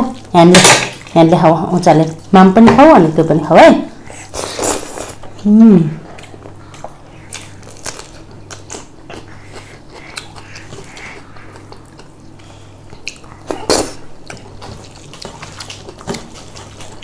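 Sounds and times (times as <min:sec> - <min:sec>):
steady low hum: 0:00.0 - 0:17.0.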